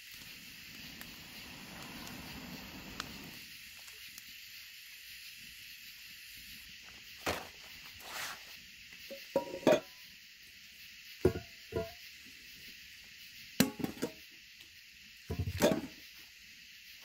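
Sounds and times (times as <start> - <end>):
steady high hiss: 0.0 - 17.0
metal pots clunking on wood: 9.2 - 9.9, 11.3 - 12.0, 13.6 - 14.2, 15.3 - 15.9.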